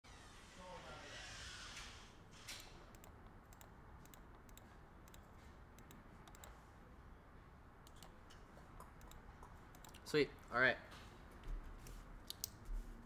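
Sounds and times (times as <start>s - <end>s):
typing on computer keyboard: 8.9s - 10.0s.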